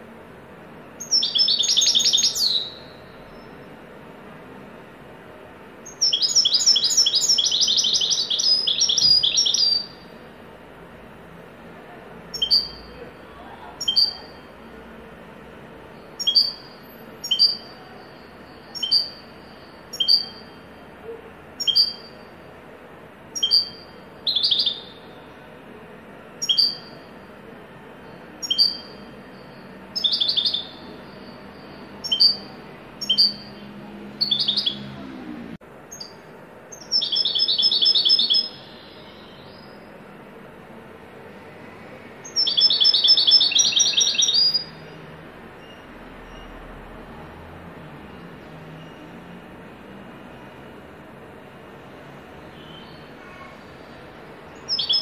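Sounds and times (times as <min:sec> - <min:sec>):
goldfinch singing: 0:01.0 - 0:03.6, 0:05.8 - 0:10.0, 0:12.3 - 0:12.9, 0:13.8 - 0:14.4, 0:16.2 - 0:17.8, 0:18.7 - 0:19.3, 0:19.9 - 0:20.6, 0:21.6 - 0:22.2, 0:23.4 - 0:25.0, 0:26.4 - 0:27.0, 0:28.4 - 0:29.0, 0:30.0 - 0:33.6, 0:34.2 - 0:34.9, 0:36.0 - 0:39.7, 0:42.2 - 0:44.7, 0:54.6 - 0:55.0.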